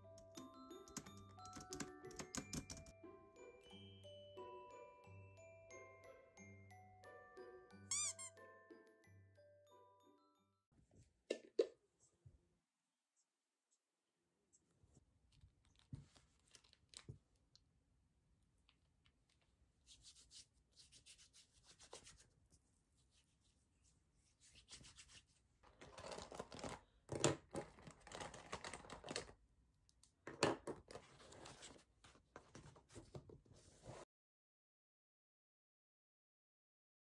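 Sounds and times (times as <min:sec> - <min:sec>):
book pages rustling: 0:15.2 - 0:17.3, 0:24.4 - 0:29.4, 0:30.8 - 0:34.1
hands rubbing together: 0:19.8 - 0:25.4.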